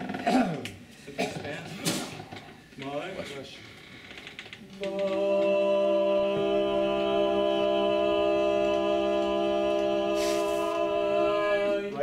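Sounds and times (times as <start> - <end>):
barbershop chorus singing a chord: 4.8 - 12.0
person breathing in: 10.2 - 10.6.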